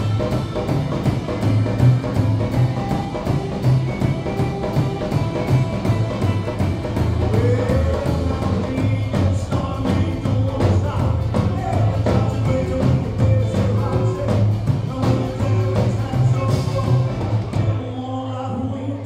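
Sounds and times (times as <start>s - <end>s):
drum kit fast beat: 0.0s - 17.8s
upright double bass: 0.0s - 17.8s
acoustic and electric guitars: 0.0s - 19.0s
man singing: 6.8s - 19.0s.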